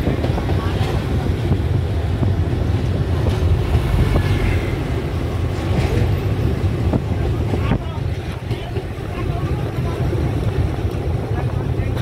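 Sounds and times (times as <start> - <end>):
moving train rumble: 0.0 - 12.0
trucks passing on road: 3.0 - 7.5.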